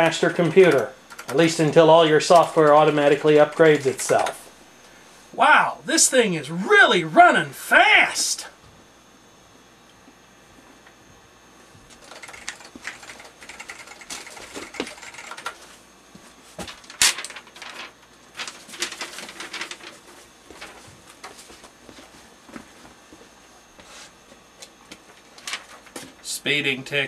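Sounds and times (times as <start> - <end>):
computer keyboard typing: 0.3 - 1.6, 11.9 - 15.6
paper rustling: 16.6 - 22.2.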